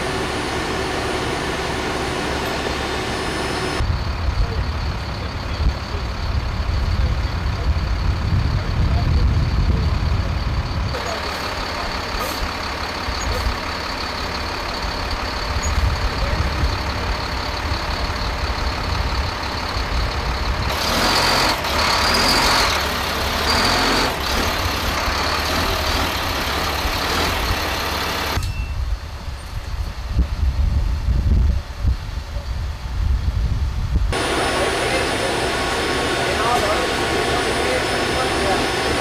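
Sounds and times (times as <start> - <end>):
high-pitched whine: 0.0 - 12.4, 34.1 - 39.0
diesel truck engine running: 0.0 - 28.4, 32.7 - 39.0.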